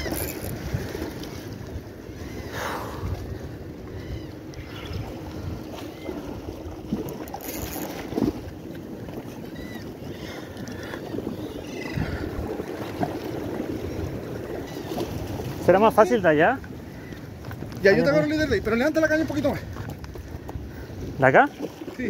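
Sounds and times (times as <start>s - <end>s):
wind on microphone: 0.0s - 15.7s
sea water washing against rocks: 5.2s - 18.0s.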